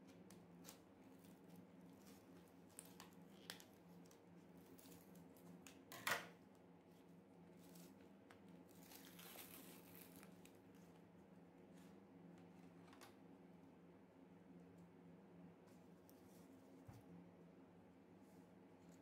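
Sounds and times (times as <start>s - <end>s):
card tearing and crinkling: 8.7s - 10.6s.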